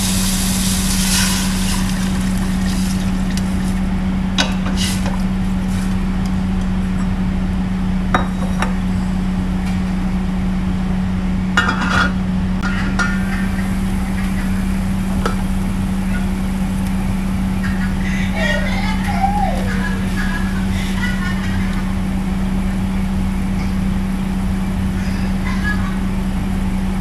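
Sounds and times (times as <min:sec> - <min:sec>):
steady low hum: 0:00.0 - 0:27.0
clinks against metal pot: 0:11.6 - 0:13.3.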